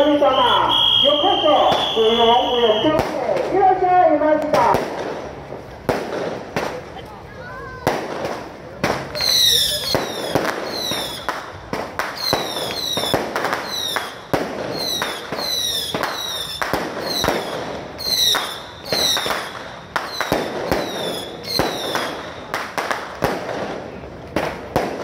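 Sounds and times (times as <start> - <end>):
falling firework whistles: 0.0 - 3.1, 9.1 - 11.4, 12.0 - 22.5
fireworks cracking and popping: 0.0 - 25.0.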